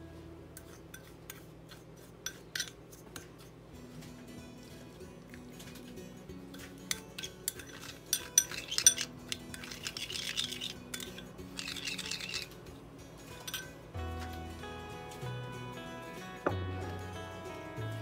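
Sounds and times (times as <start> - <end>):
soft background music: 0.0 - 1.0, 3.2 - 18.0
spoon and bowls clinking: 0.5 - 3.6, 4.9 - 14.4
spoon stirring sauce: 0.5 - 3.7, 4.7 - 13.8.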